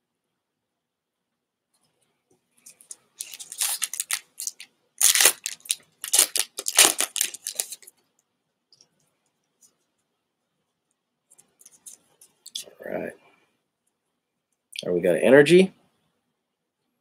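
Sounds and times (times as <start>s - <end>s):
foil wrapper tearing and crinkling: 2.7s - 7.9s.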